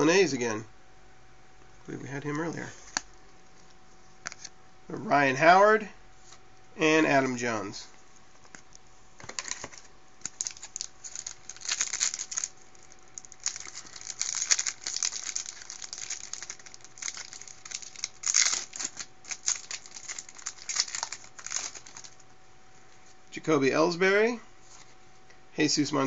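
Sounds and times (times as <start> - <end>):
wrappers and cards rustling: 8.4 - 22.3
foil wrapper crinkling and tearing: 9.4 - 22.2.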